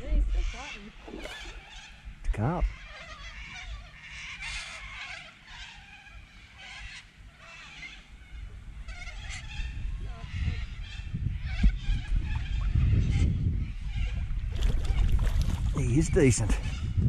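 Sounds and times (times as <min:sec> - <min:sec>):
birds chirping and warbling: 0:00.0 - 0:17.0.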